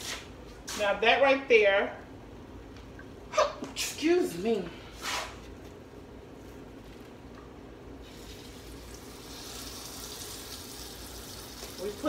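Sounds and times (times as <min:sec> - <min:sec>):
meat sizzling in hot grease: 0:08.0 - 0:12.0.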